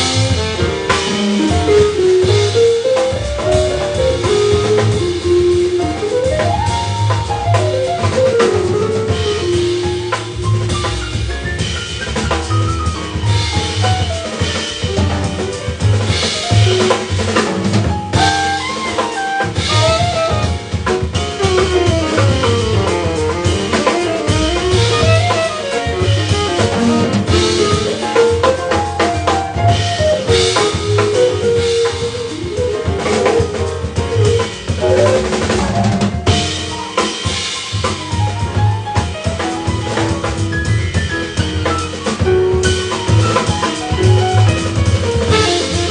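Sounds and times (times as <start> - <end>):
drum kit: 0.0 - 45.9
piano: 0.0 - 45.9
upright bass: 0.0 - 45.9
saxophone melody: 18.2 - 28.5, 45.3 - 45.9.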